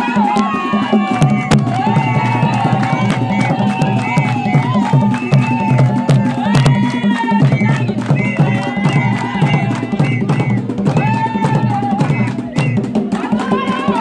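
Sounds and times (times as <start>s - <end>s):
drums beating fast rhythm: 0.0s - 14.0s
women singing: 0.0s - 14.0s.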